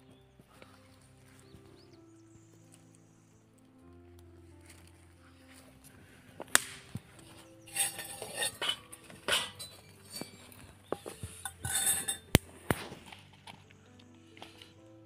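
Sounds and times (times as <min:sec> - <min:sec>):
cutlery clinking in steel bowl: 0:07.7 - 0:12.4.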